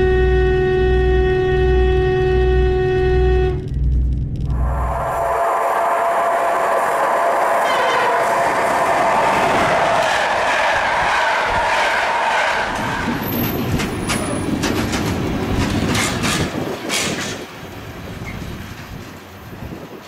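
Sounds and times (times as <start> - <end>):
train horn chord: 0.0 - 3.8, 4.5 - 12.6
wheels clacking over rail joints: 9.1 - 19.6.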